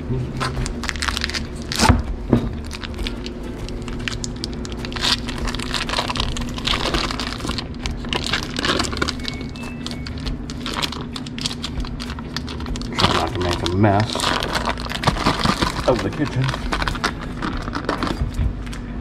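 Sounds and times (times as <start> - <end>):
foil wrapper crinkling: 0.6 - 18.4.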